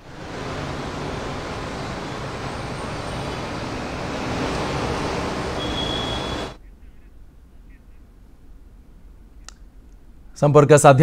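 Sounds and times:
loud rushing noise: 0.0 - 6.6
brief high tone: 5.4 - 6.6.

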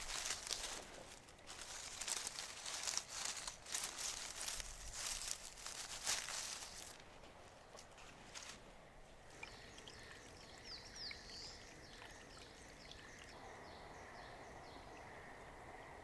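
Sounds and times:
dry leaves crackling and rustling: 0.0 - 8.7.

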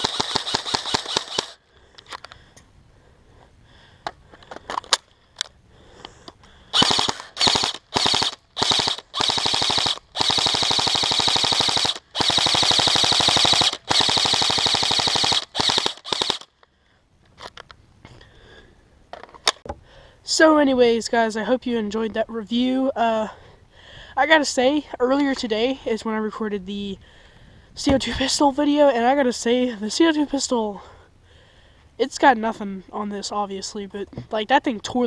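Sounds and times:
airsoft rifle firing: 0.0 - 1.6, 6.7 - 16.5.

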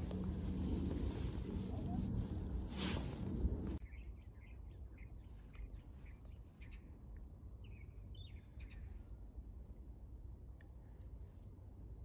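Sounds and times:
low outdoor rumble: 0.0 - 3.8.

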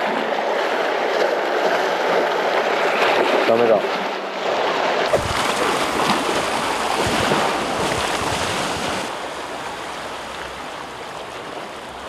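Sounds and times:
waves on rocky shore: 0.0 - 12.0
wind buffeting microphone: 5.1 - 12.0.

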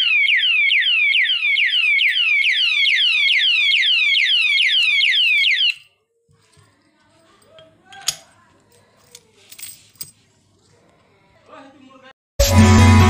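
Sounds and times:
alarm padlock electronic siren: 0.0 - 6.0.

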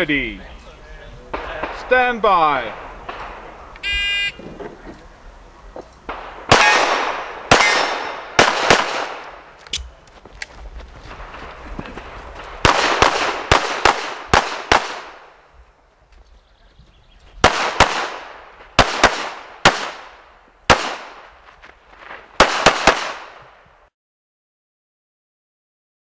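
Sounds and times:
rapid pistol shots with echo: 6.1 - 9.5, 12.5 - 15.4, 17.4 - 21.3, 22.4 - 23.4.

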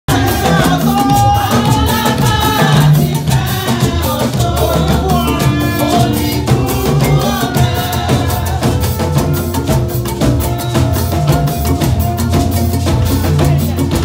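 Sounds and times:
choir singing: 0.1 - 14.0
drum and shaker percussion: 0.1 - 14.0.

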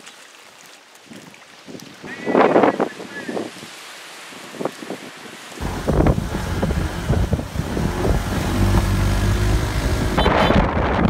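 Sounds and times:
wind buffeting microphone: 4.4 - 11.0
car driving past: 5.6 - 10.2.

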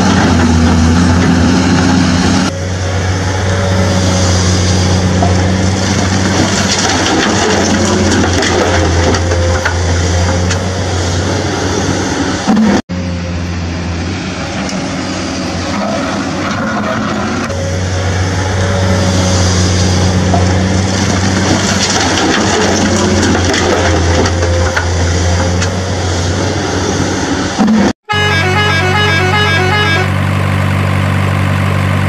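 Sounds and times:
soil and stones falling into plastic: 6.0 - 9.4, 21.0 - 24.8.

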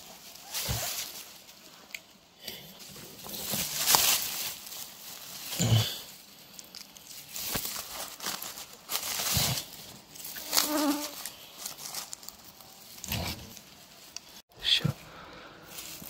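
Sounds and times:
rustling of leaf litter: 0.0 - 2.0, 2.6 - 14.4, 15.0 - 16.0
flying insect buzzing: 10.3 - 11.5.

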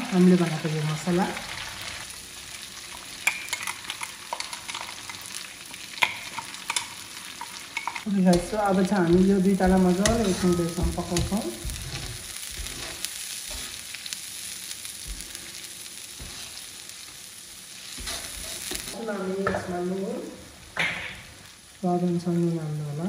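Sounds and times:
oil sizzling in a pan: 0.0 - 23.0
metal spatula scraping a pan: 9.6 - 13.9, 16.2 - 16.7, 17.8 - 19.0.

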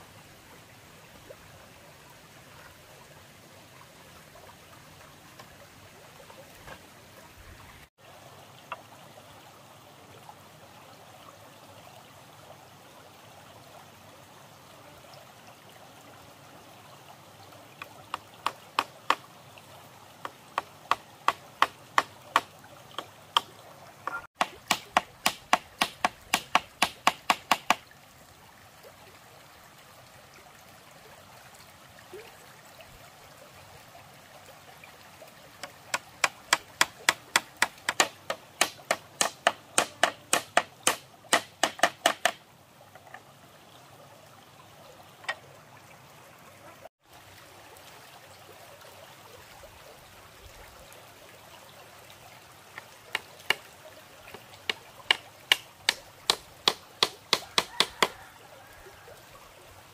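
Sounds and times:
stream flowing over gravel: 0.0 - 59.9
hammer blows nailing wood: 24.4 - 27.8, 36.2 - 42.4, 55.5 - 58.1.

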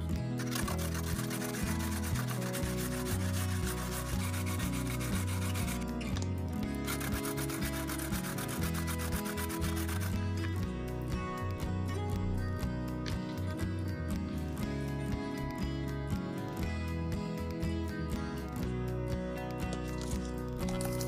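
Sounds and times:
background music with bass: 0.0 - 21.0
rasping sanding strokes: 0.4 - 5.9, 6.7 - 10.2.

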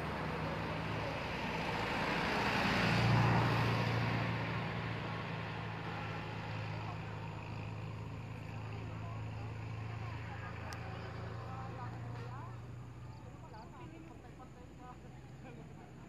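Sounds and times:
vehicle passing: 0.0 - 16.0.

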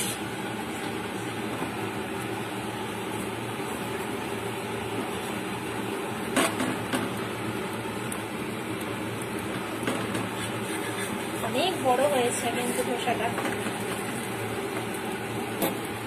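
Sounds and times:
pan sizzling hiss: 0.0 - 16.0.

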